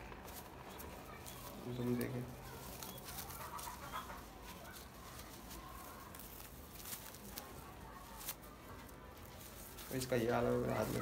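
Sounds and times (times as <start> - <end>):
faint bird calls: 0.0 - 6.1
pigeon feathers rustling: 0.0 - 11.0.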